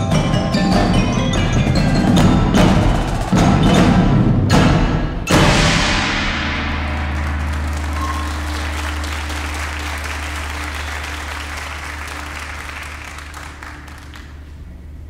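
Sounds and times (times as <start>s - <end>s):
steady low hum: 5.5s - 15.0s
crowd applauding: 6.8s - 14.6s.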